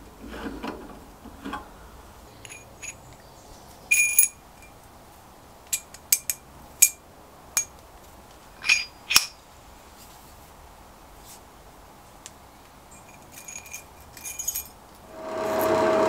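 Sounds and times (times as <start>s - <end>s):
metal parts clinking and ringing: 2.4s - 3.1s, 3.9s - 4.8s, 8.6s - 9.4s, 12.9s - 14.8s.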